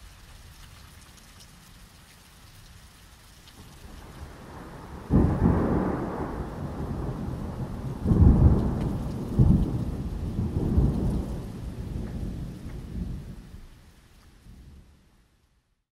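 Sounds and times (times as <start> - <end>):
rain falling: 0.0 - 15.6
thunder rumbling: 3.7 - 13.7.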